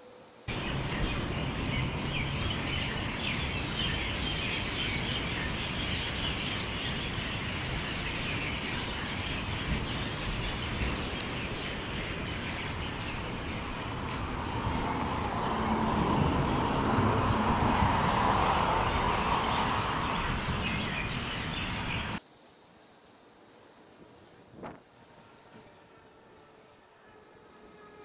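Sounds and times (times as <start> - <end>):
small birds chirping: 0.5 - 22.2.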